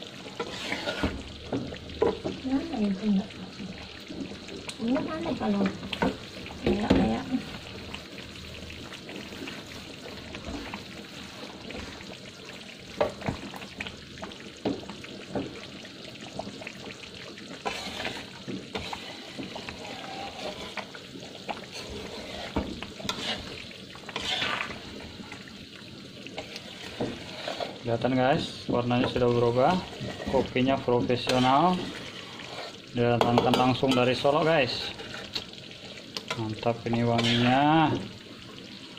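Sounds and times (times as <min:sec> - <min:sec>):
sauce sizzling and bubbling in a wok: 0:00.0 - 0:38.9
spatula scraping a pan: 0:00.1 - 0:02.6, 0:17.5 - 0:25.5, 0:26.2 - 0:35.6, 0:36.3 - 0:37.8.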